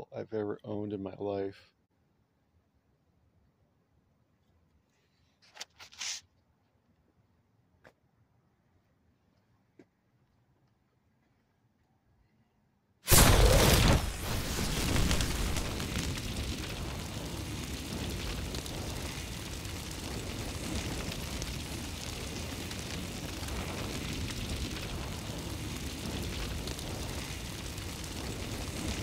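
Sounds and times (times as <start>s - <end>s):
crackling rumble of burning flames: 13.1s - 29.0s.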